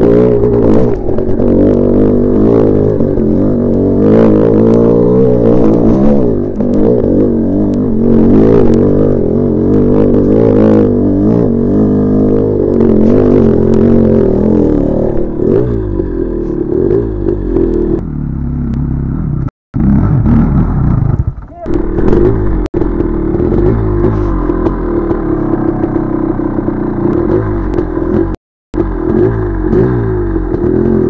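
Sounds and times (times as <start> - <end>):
dirt bike engine revving: 0.0 - 31.0
engine clatter: 18.6 - 31.0.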